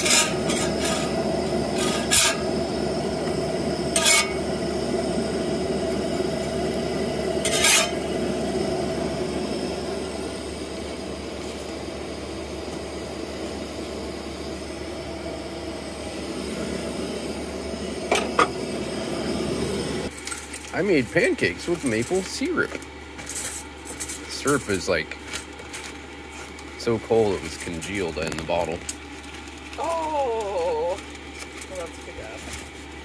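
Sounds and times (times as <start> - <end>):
metal spatula scraping griddle: 0.0 - 2.5, 3.9 - 4.5, 7.4 - 8.1
camp stove burner hissing: 0.0 - 33.0.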